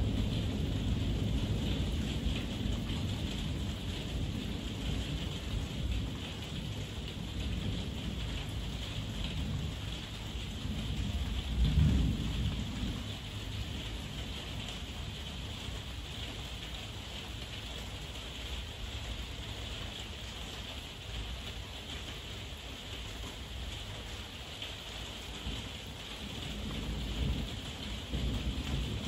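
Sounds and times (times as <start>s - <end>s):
low thunder rumble: 0.0s - 15.8s, 25.5s - 29.0s
heavy rain falling: 0.0s - 29.0s.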